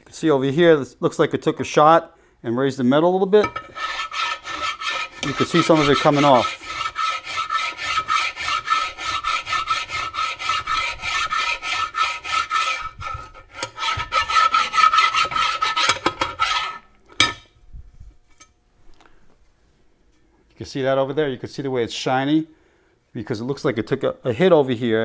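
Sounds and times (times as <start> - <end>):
file rasping on metal: 3.4 - 16.9.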